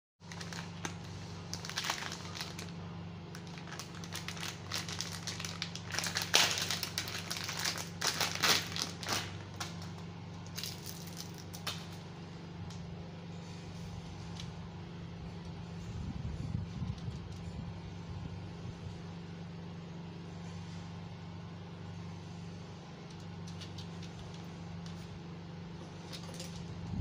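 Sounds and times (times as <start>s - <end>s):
plastic packaging crinkling: 0.2s - 12.0s
steady low hum: 0.2s - 27.0s.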